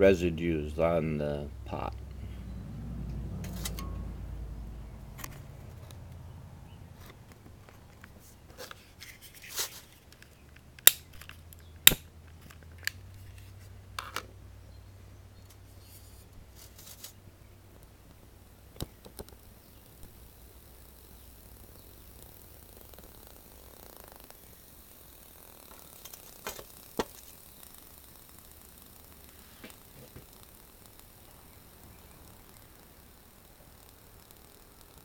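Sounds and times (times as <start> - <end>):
lighter clicks: 10.8 - 11.2, 11.8 - 12.0.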